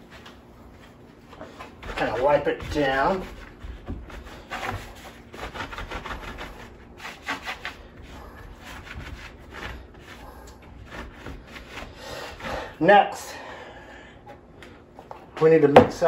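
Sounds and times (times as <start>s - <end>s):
cloth rag wiping plastic: 0.0s - 12.6s.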